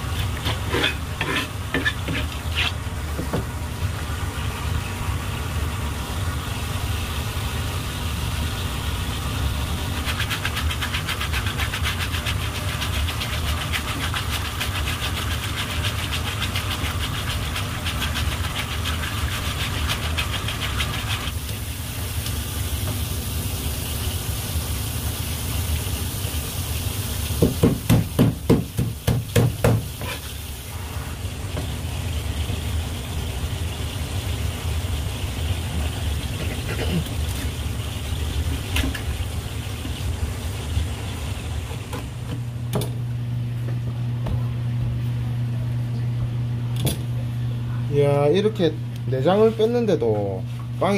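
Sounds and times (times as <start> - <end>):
hose water spraying: 4.0 - 42.2
hands rubbing fish: 10.0 - 21.3.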